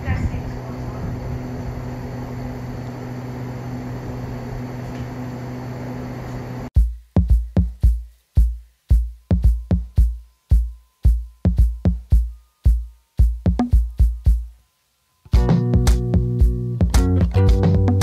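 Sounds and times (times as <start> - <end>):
drum machine beat: 6.8 - 14.6, 15.3 - 18.0.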